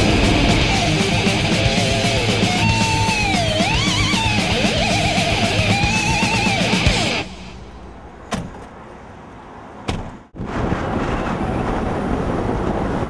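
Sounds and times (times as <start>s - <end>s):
heavy metal guitar music: 0.0s - 7.8s
car traffic noise: 0.0s - 10.4s
quiet street noise: 0.0s - 13.0s.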